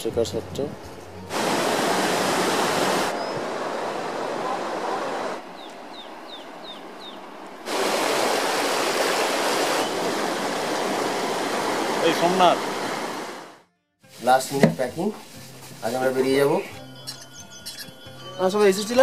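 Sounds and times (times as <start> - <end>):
river rushing over rocks: 1.3 - 6.2, 6.8 - 13.6
small bird chirping: 5.5 - 7.2, 16.9 - 18.1.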